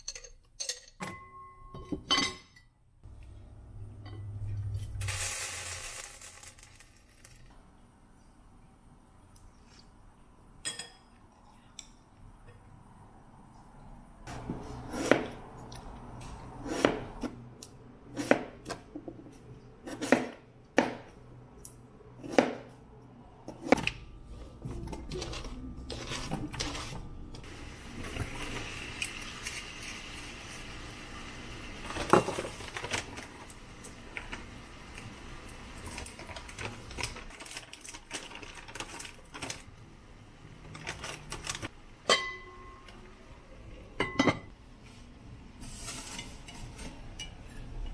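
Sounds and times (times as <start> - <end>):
food sizzling in a hot pan: 5.0 - 6.8.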